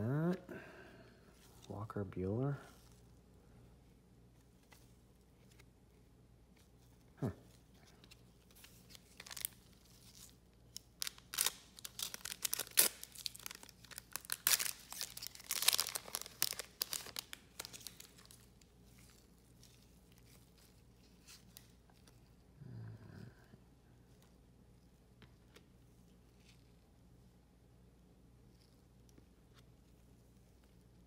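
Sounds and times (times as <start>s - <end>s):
wrapper tearing and crinkling: 8.5s - 21.6s.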